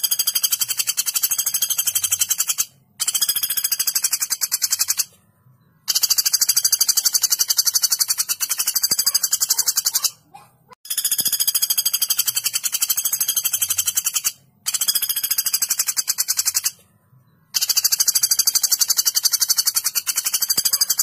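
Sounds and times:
woodpecker rattling trills: 0.0 - 5.1, 5.8 - 16.8, 17.5 - 21.0.

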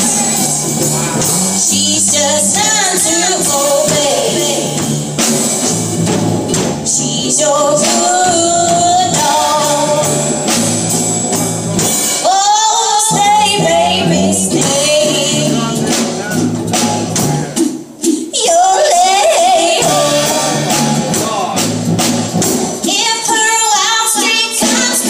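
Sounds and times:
electric guitars: 0.0 - 12.2
drums with cymbals: 0.0 - 25.0
woman singing: 1.2 - 5.0, 6.8 - 10.4, 12.2 - 15.8, 18.2 - 20.9, 22.8 - 25.0.

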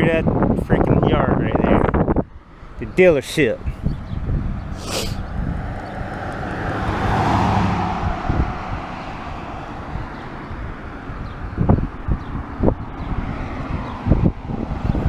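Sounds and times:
vehicle driving past: 4.1 - 15.0.

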